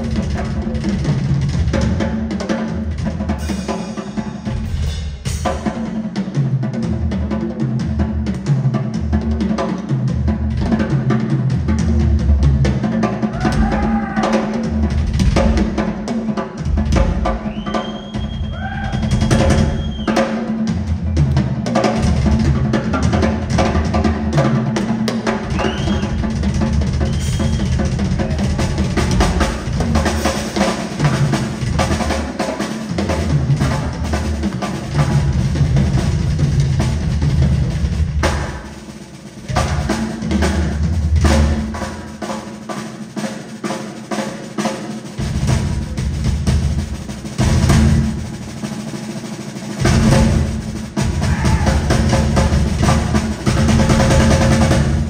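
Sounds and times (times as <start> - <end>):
drum solo: 0.0 - 55.0
audience whistles and whoops: 17.4 - 20.3, 25.5 - 26.2, 27.0 - 27.9.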